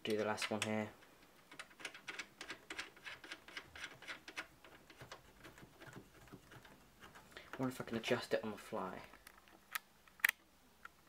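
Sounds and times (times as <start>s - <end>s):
thumb nuts clicking and scraping: 0.0s - 7.8s.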